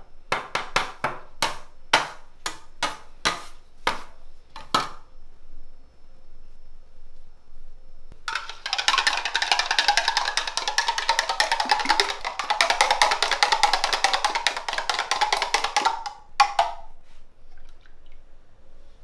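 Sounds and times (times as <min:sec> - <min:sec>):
egg pouring: 0:08.3 - 0:15.8, 0:17.4 - 0:18.4
spoon beating eggs in glass jug: 0:08.3 - 0:16.8
spoon knocking on glass: 0:08.3 - 0:16.9.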